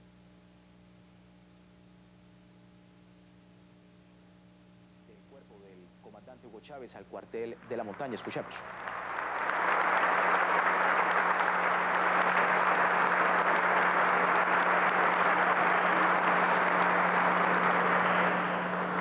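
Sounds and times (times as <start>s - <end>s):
faint steady hum: 0.0s - 19.0s
crowd applause: 7.4s - 19.0s.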